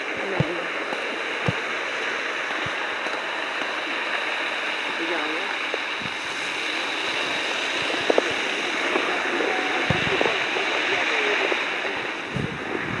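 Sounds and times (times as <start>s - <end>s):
steady rushing hiss: 0.0s - 13.0s
faint distant voices: 6.6s - 13.0s.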